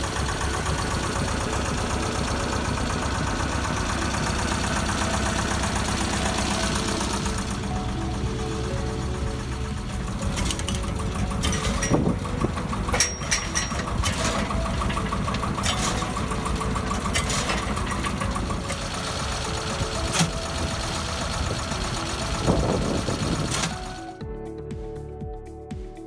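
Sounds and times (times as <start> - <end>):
drilling rig engine running: 0.0 - 24.2
sharp metallic knocks: 10.3 - 18.9.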